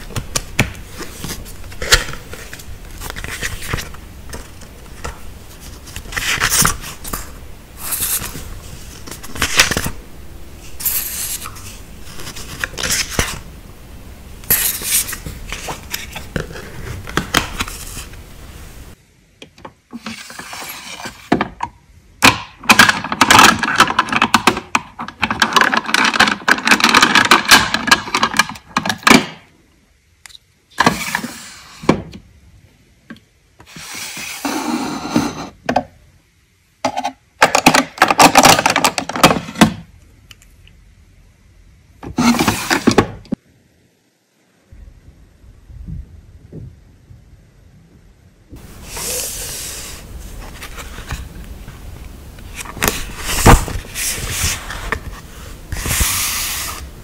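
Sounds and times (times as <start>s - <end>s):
crackling paper rustle: 0.0s - 10.0s, 49.0s - 56.9s
paper and sticker sheets handled: 0.0s - 10.0s, 10.6s - 13.4s, 14.5s - 18.2s, 48.7s - 51.8s, 52.4s - 56.9s.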